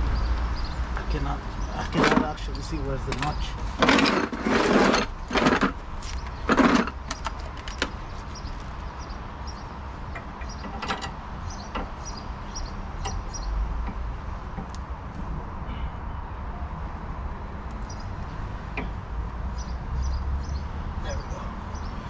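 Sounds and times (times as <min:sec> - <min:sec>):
tool scraping: 0:03.1 - 0:07.3.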